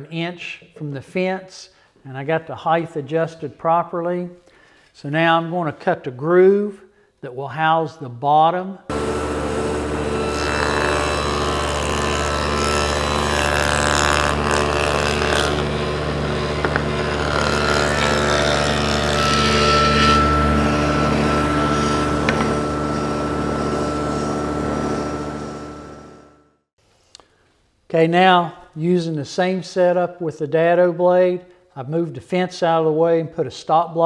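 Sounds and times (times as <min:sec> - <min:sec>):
saw motor hum and blade whine: 0:08.9 - 0:26.5
table saw cutting wood: 0:08.9 - 0:26.6.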